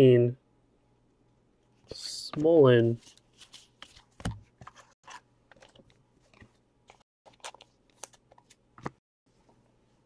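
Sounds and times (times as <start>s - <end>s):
trading cards clicking and rustling: 2.4s - 9.0s.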